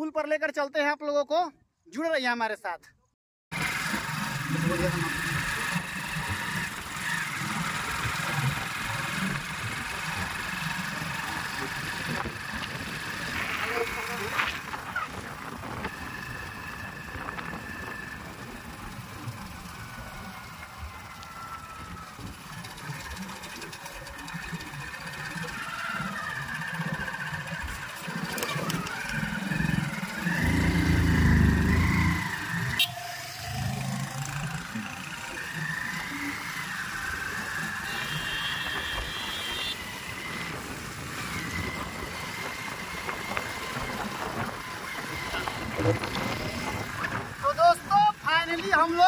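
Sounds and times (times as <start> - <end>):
small motorcycle engine rattling: 3.5 - 49.0.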